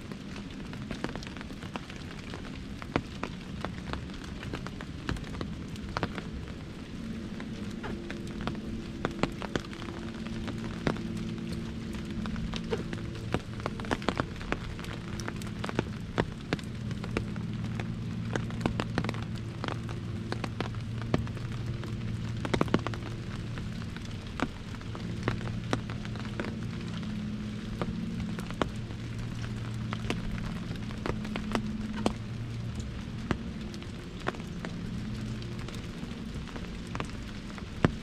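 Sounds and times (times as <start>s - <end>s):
low steady hum: 0.0s - 38.0s
rain drumming on an umbrella: 0.0s - 38.0s.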